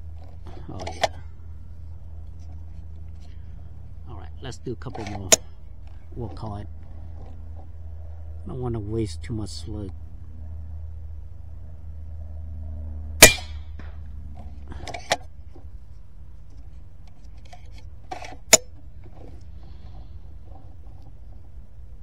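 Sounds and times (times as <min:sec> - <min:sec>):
air rifle shot: 0:13.2 - 0:13.8.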